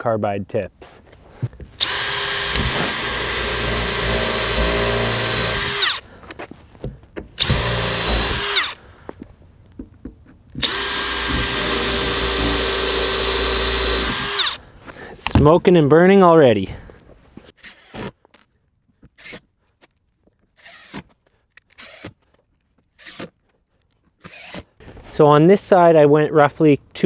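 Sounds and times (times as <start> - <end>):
cordless drill spinning: 1.8 - 6.1, 7.4 - 8.8, 10.6 - 14.6, 20.6 - 22.3, 23.0 - 23.4, 24.2 - 24.8.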